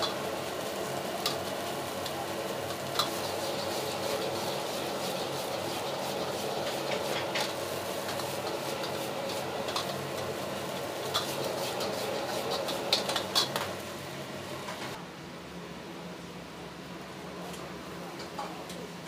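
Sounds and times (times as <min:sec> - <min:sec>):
gas burner rushing: 0:00.0 - 0:15.0
rice sizzling: 0:00.0 - 0:15.0
metal ladle scraping wok: 0:02.7 - 0:13.7.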